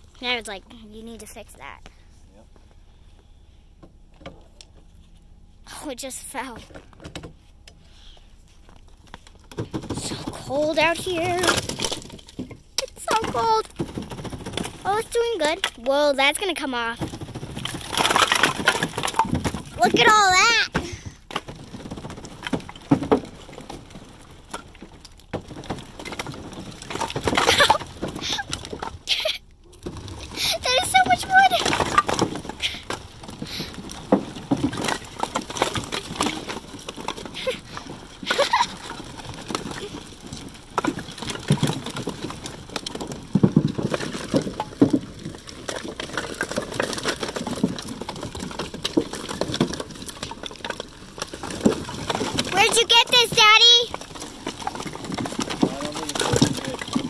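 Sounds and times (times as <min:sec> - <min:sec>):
firewood knocking and shifting: 0:00.0 - 0:05.7, 0:06.4 - 0:57.0
wood clattering: 0:06.4 - 0:57.0.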